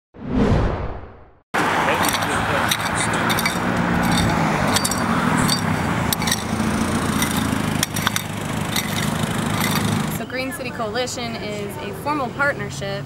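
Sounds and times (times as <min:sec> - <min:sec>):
engine running steadily: 0:01.8 - 0:10.3.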